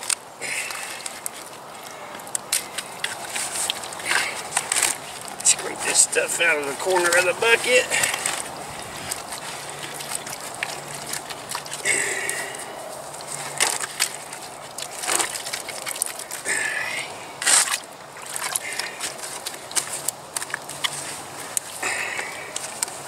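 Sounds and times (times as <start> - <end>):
stick scraping plastic bucket: 2.6 - 12.5.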